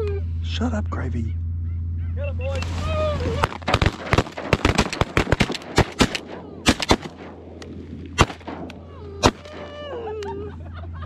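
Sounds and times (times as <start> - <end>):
shotgun shots: 3.4 - 9.8.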